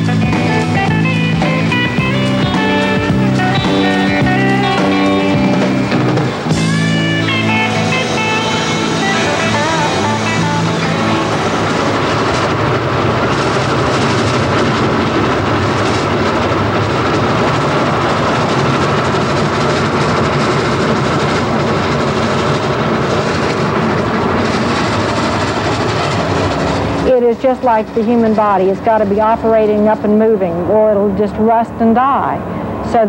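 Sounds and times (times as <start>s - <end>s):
steam train running on track: 0.0s - 33.0s.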